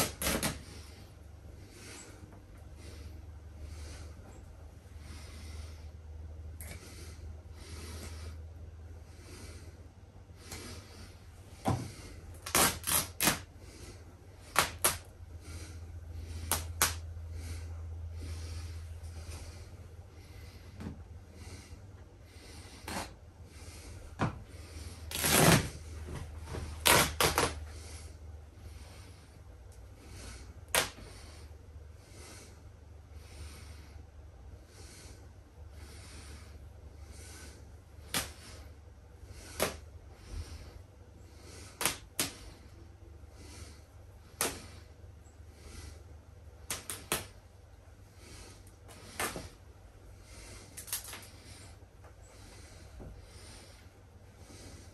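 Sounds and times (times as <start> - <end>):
plush toy fabric tearing: 0.0 - 0.8, 12.4 - 13.5, 14.4 - 15.0, 25.1 - 25.8, 26.7 - 27.6
steady low hum: 0.0 - 54.9
soft breathing-like swells: 15.2 - 25.1
sharp snap: 16.4 - 17.0, 30.7 - 31.1, 38.1 - 38.5, 39.5 - 39.8, 41.8 - 42.4, 44.4 - 44.8, 46.6 - 47.4.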